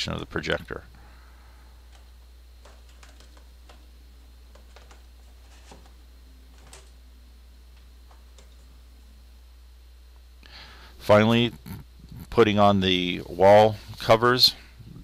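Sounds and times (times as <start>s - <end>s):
steady low hum: 0.0s - 15.0s
small clicks and taps on plastic: 1.9s - 3.9s, 4.5s - 5.1s.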